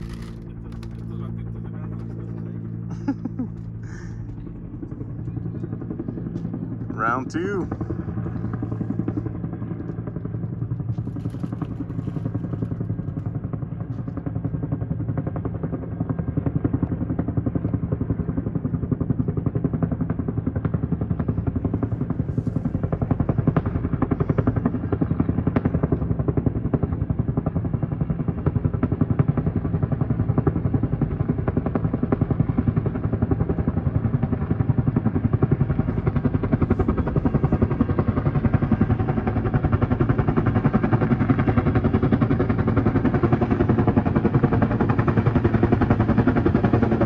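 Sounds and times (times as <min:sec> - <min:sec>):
helicopter rotor beating: 0:00.0 - 0:47.0.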